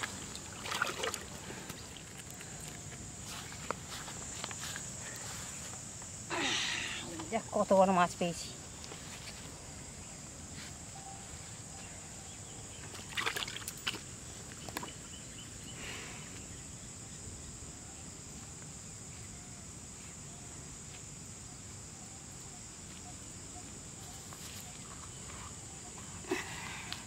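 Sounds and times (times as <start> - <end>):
water splashing and sloshing: 0.0 - 2.8, 12.8 - 15.0
high insect drone: 0.0 - 27.0
low outdoor background: 0.0 - 27.0.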